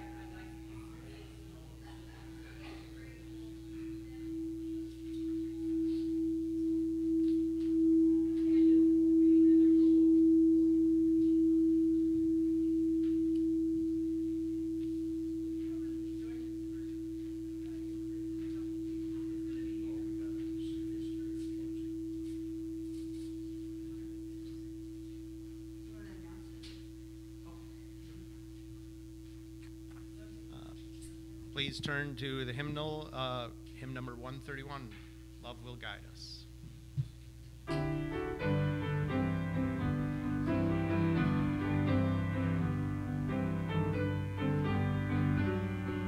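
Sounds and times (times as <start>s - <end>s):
singing bowl ringing: 0.0s - 25.4s.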